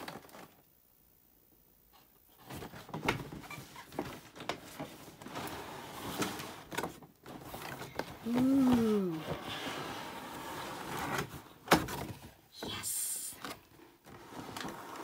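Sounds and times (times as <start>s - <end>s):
person exclaiming: 8.2s - 9.3s, 12.6s - 13.4s.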